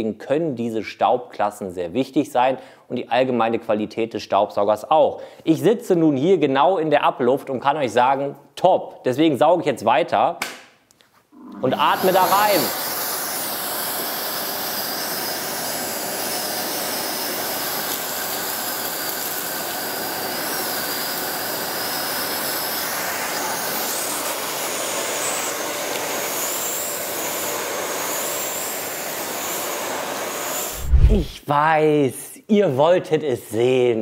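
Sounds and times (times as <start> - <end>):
workshop vacuum running: 11.4 - 31.3.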